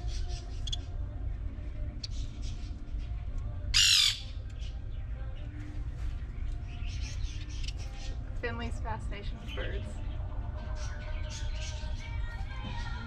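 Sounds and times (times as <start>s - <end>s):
bird squawking harshly: 3.8s - 4.2s.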